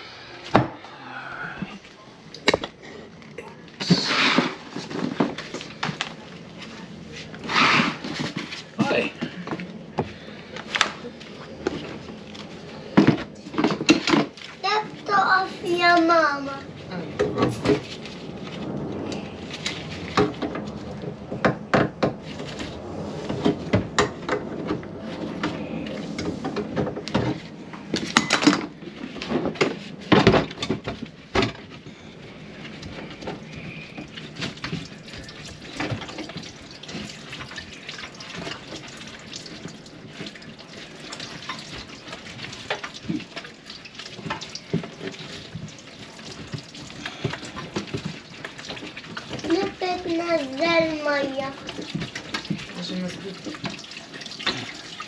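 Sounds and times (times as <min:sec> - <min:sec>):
water splashing in sink: 0:03.8 - 0:55.0
knocks and clatter: 0:17.1 - 0:31.9.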